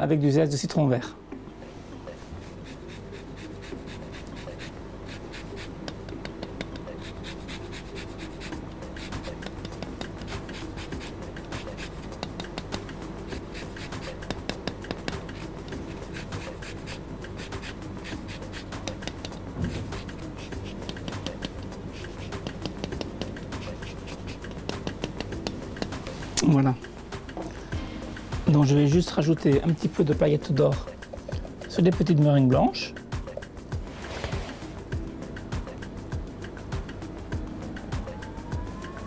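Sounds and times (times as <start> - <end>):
lime scraping on grater: 15.2 - 24.8.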